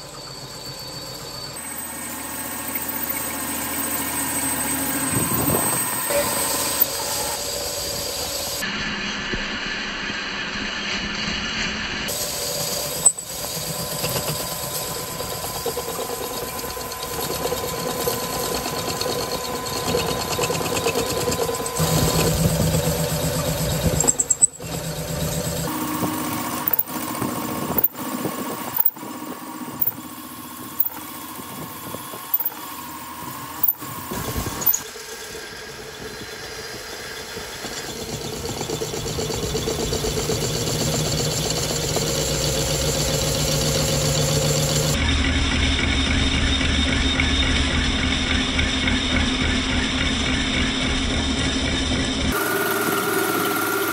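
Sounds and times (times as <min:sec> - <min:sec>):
metal lathe running: 0:00.0 - 0:08.6, 0:12.1 - 0:53.9
sharp clicks: 0:32.3 - 0:32.6.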